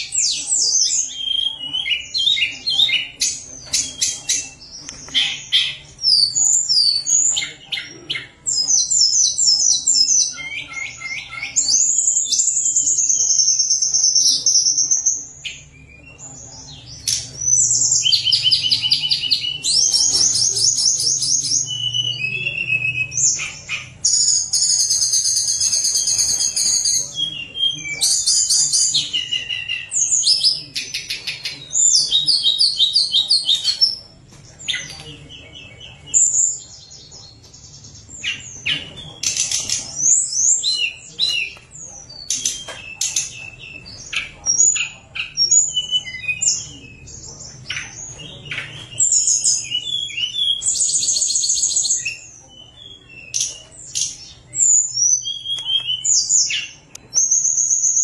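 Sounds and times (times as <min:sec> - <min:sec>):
bird song with fluting whistles and trills: 0:00.0 - 0:58.0.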